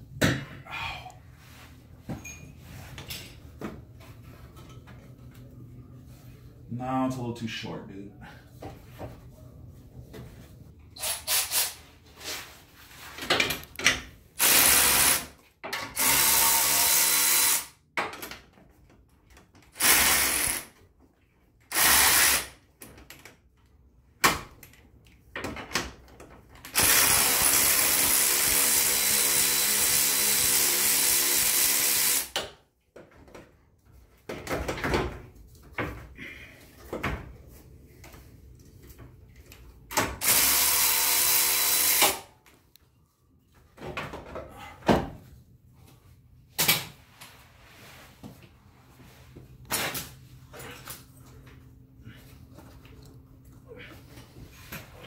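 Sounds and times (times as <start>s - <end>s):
power ratchet running: 14.4s - 15.3s, 16.0s - 17.7s, 19.8s - 20.7s, 21.7s - 22.5s, 26.8s - 32.3s, 40.2s - 42.2s.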